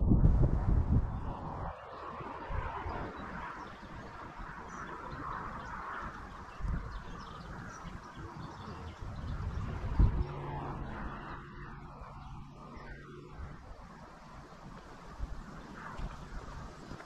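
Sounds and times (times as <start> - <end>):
wind rumbling on microphone: 0.0 - 17.0
small birds chirping: 3.0 - 13.4.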